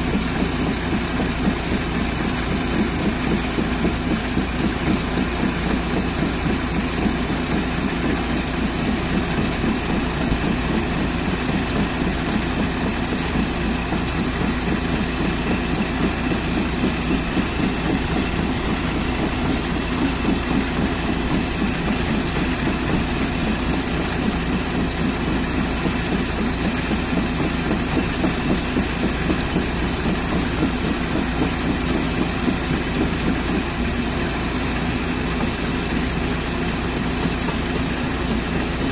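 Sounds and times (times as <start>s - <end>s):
engine idling: 0.0s - 38.9s.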